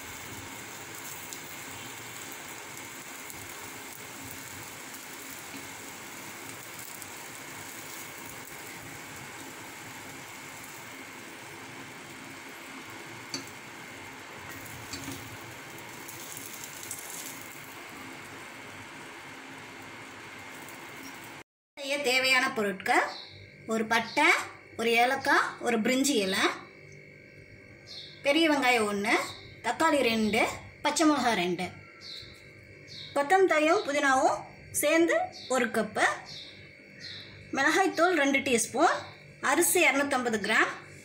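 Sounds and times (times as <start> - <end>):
oil sizzling in a pan: 0.0 - 21.4.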